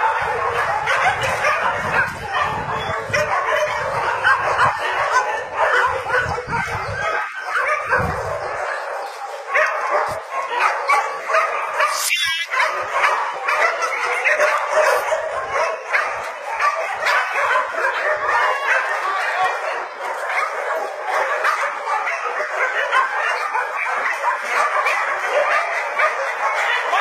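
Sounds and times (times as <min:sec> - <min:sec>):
many dogs barking: 0:00.0 - 0:27.0.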